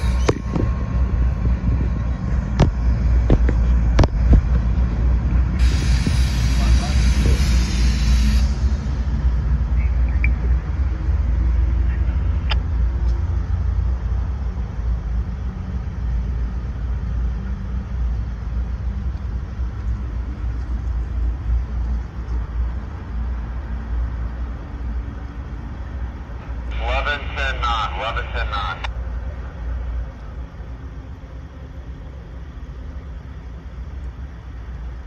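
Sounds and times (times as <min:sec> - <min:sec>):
diesel locomotive engines rumbling: 0:00.0 - 0:35.0
hiss: 0:05.6 - 0:09.1.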